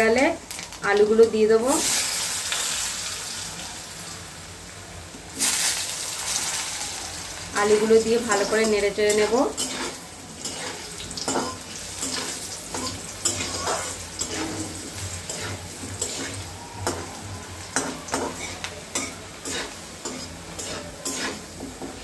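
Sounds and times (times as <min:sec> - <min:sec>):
potatoes sizzling in oil: 0:00.0 - 0:22.0
metal spatula scraping wok: 0:07.6 - 0:22.0.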